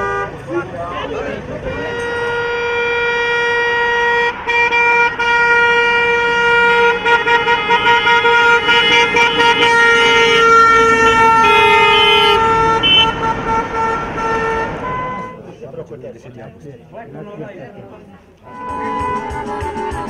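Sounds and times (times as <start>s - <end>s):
car horns honking: 0.0s - 15.4s, 18.4s - 20.0s.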